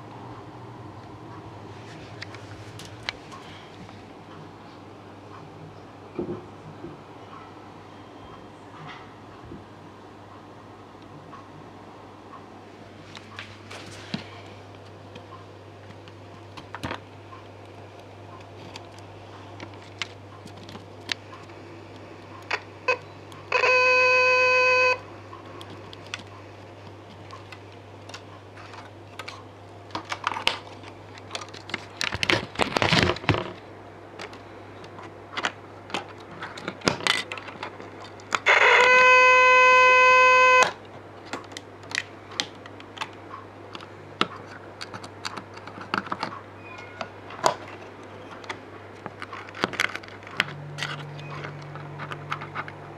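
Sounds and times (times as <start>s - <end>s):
steady low hum: 0.0s - 52.9s
buzzy electronic beep: 38.7s - 40.7s.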